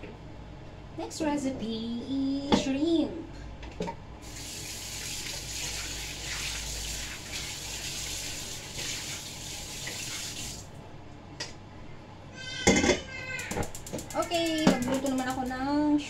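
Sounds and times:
water splashing in wok: 0:04.2 - 0:10.7.

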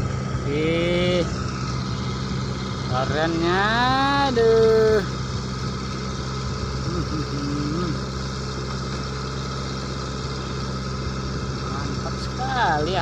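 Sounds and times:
diesel engine drone: 0:00.0 - 0:13.0.

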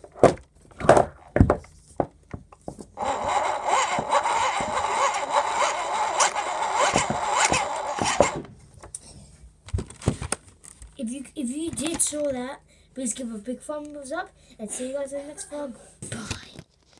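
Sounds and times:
hand-cranked generator whirring: 0:03.0 - 0:08.5.

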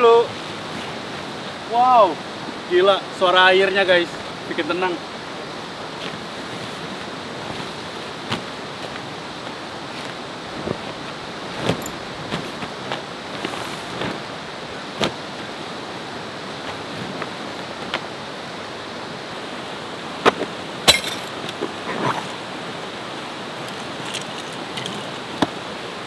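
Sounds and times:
fast-flowing river rushing: 0:00.0 - 0:26.0
tent fabric rustling: 0:06.0 - 0:15.6, 0:16.5 - 0:18.1, 0:21.3 - 0:22.5.

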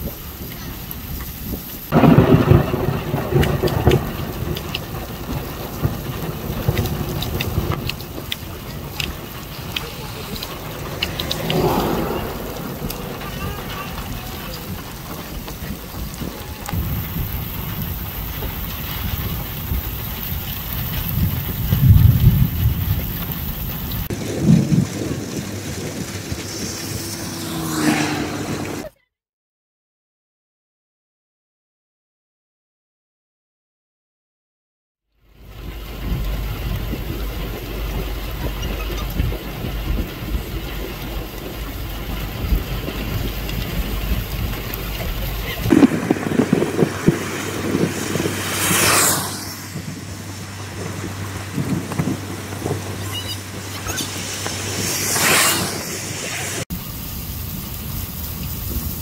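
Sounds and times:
heavy rain on road: 0:00.0 - 0:29.0, 0:35.2 - 0:59.0
tyres hissing through water: 0:06.4 - 0:24.1, 0:35.4 - 0:59.0.

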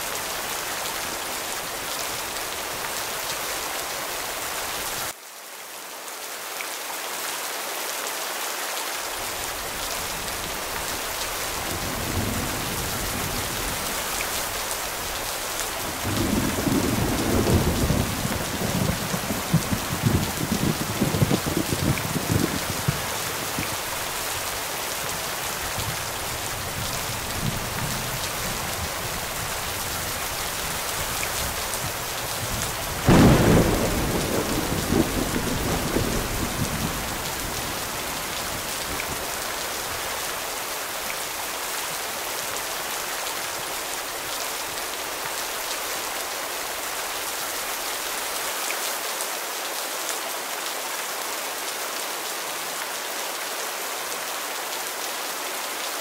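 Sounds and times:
heavy rain: 0:00.0 - 0:56.0
thunderclap rumbling: 0:15.9 - 0:23.9, 0:30.8 - 0:37.8.

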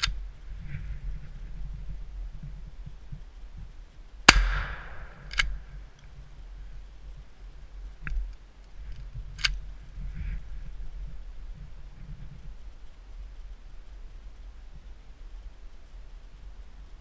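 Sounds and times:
shotgun shot with echo: 0:04.3 - 0:05.6.

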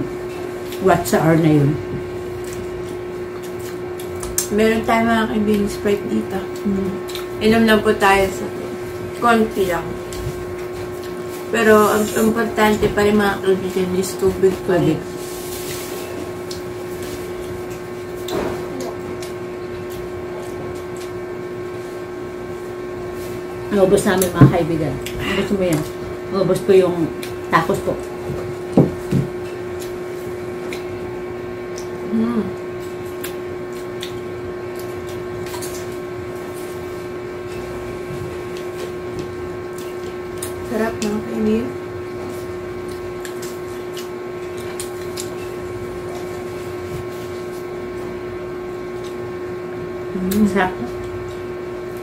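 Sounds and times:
mechanical room hum: 0:00.0 - 0:52.0
people chewing food: 0:00.0 - 0:52.0.

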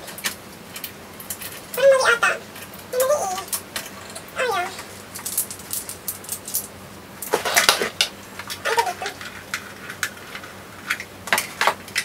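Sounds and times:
plastic and metal parts clattering: 0:05.2 - 0:12.0.

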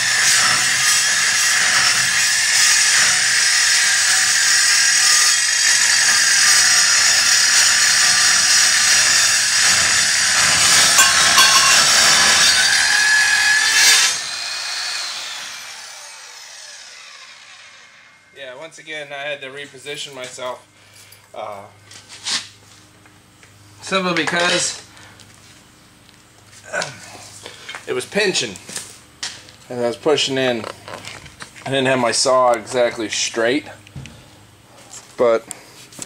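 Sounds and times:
circular saw cutting steel: 0:00.0 - 0:18.3
saw motor winding down: 0:04.9 - 0:18.4.

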